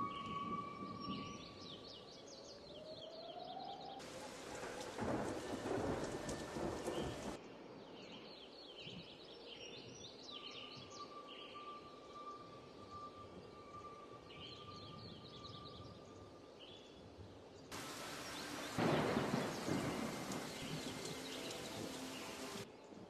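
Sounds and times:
rumbling hissing noise: 17.7 - 22.7.

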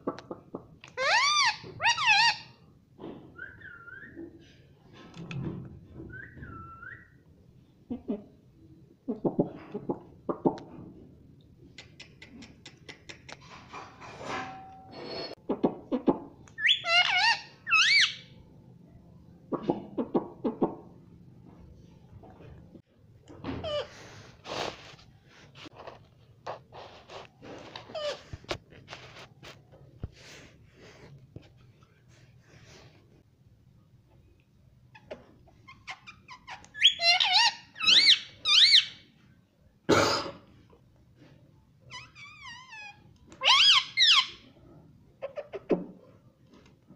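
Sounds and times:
parrot squeaky calls: 1.0 - 2.6, 16.6 - 18.4, 35.0 - 39.0, 41.9 - 44.5
parakeet chirps: 16.6 - 18.3, 35.8 - 39.0.

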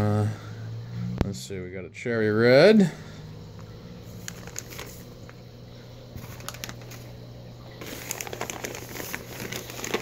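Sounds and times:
steady low hum: 0.0 - 10.0
plastic bag crinkling: 4.1 - 5.4, 6.1 - 10.0.

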